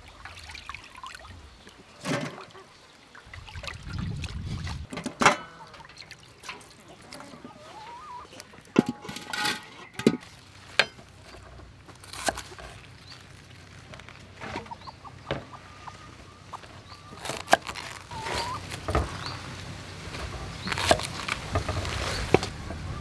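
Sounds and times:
chickens clucking: 0:01.8 - 0:03.0, 0:05.0 - 0:11.7, 0:14.3 - 0:19.7.

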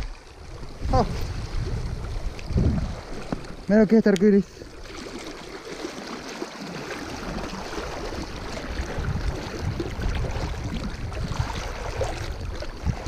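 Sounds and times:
river current rushing and splashing: 0:00.0 - 0:13.0.

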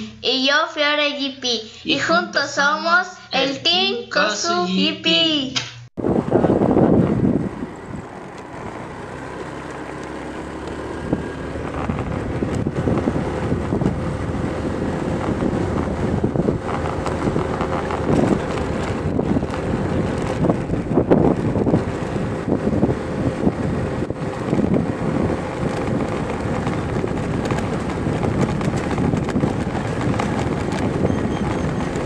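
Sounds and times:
ride rumble: 0:06.0 - 0:32.0
wind buffeting microphone: 0:06.0 - 0:32.0.

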